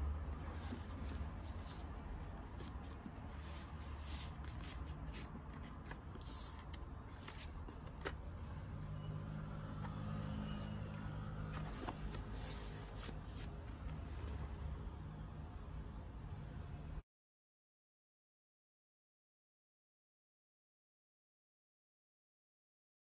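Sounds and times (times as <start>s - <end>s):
paper and cardboard rustling: 0.3s - 8.3s, 11.5s - 14.6s.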